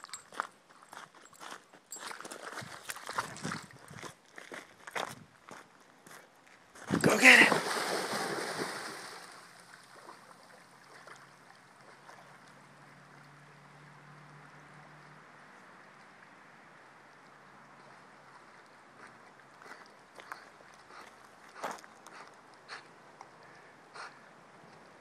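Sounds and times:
moving water: 0:00.0 - 0:05.0, 0:06.8 - 0:25.0
dog splashing in water: 0:06.9 - 0:10.2.

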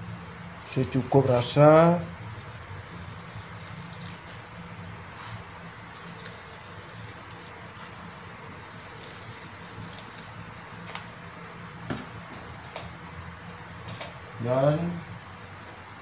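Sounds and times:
low steady hum: 0:00.0 - 0:16.0
seasoning shaken: 0:00.6 - 0:10.7.

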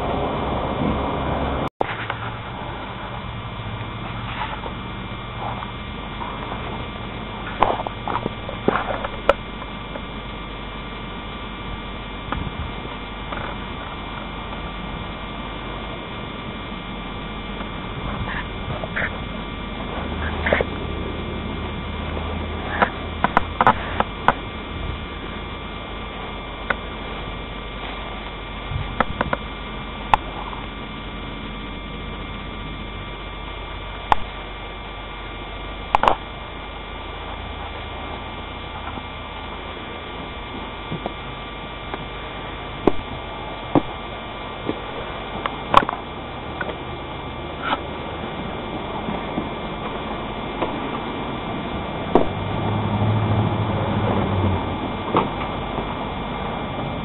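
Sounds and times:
steady electrical hum: 0:00.0 - 0:57.0.

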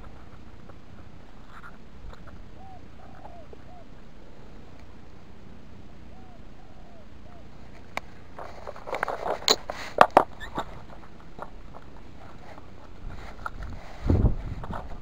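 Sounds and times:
rustling: 0:07.5 - 0:15.0.

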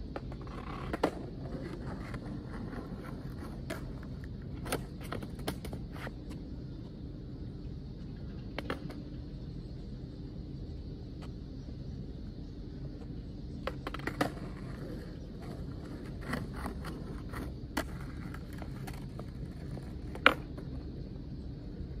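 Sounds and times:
skateboard rolling on asphalt: 0:00.0 - 0:22.0
skateboard clacking on ground: 0:00.1 - 0:06.4, 0:08.1 - 0:09.1, 0:13.0 - 0:20.9.

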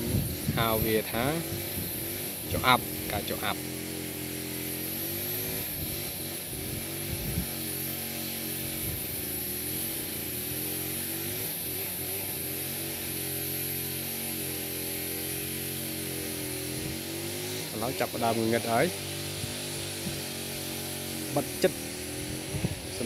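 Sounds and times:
drone propellers humming: 0:00.0 - 0:23.0.

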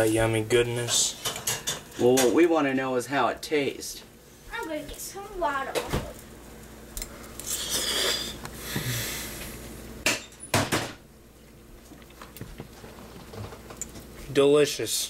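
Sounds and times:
dishes clattering: 0:00.9 - 0:02.4.

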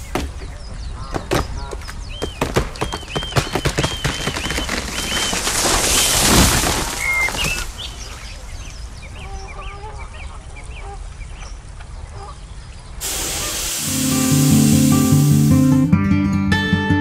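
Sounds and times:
birds chirping and honking: 0:00.0 - 0:15.5
strummed acoustic guitar: 0:13.8 - 0:16.6.

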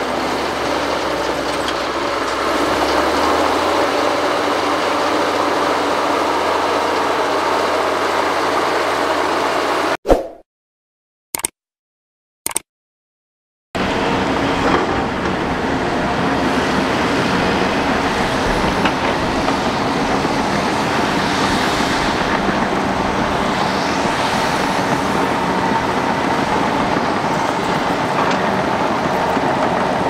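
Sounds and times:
bulldozer diesel engine running: 0:00.0 - 0:09.9, 0:13.8 - 0:30.0
steel tracks clattering: 0:13.9 - 0:30.0.

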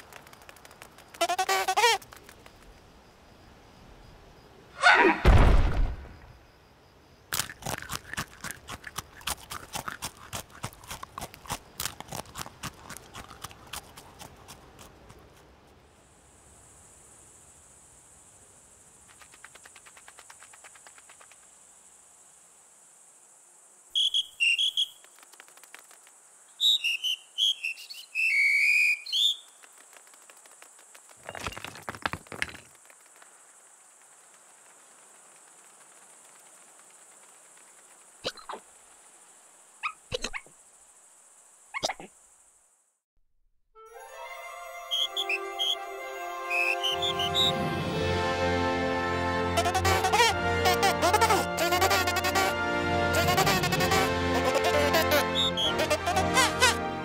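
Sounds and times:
insect chirping: 0:00.0 - 0:43.0, 0:44.8 - 0:47.6, 0:53.2 - 0:56.8
deep crash: 0:05.2 - 0:06.2.

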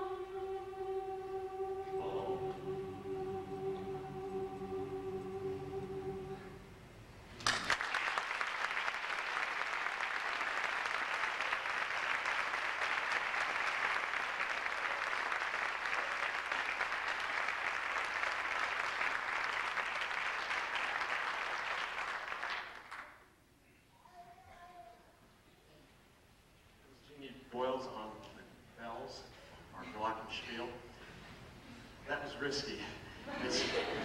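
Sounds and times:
held music note: 0:00.0 - 0:06.8
audience applauding: 0:07.4 - 0:23.2.

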